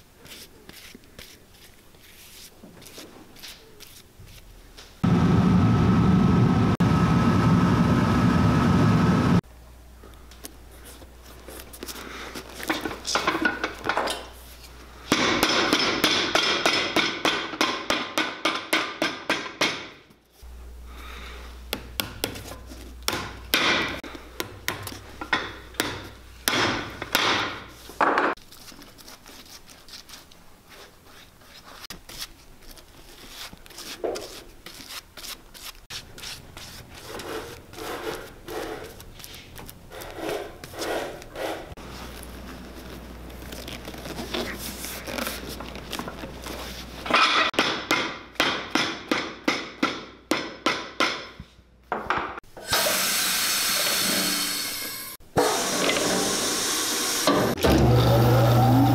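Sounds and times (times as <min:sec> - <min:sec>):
hands rubbing leather: 0:00.2 - 0:04.5.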